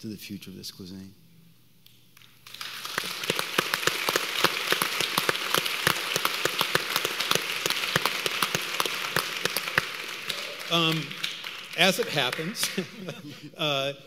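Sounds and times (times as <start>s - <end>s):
audience applauding: 2.4s - 13.4s.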